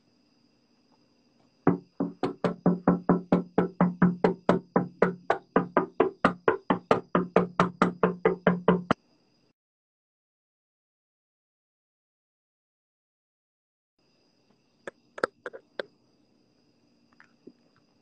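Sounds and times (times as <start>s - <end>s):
fist knocking on a door: 1.7s - 9.0s.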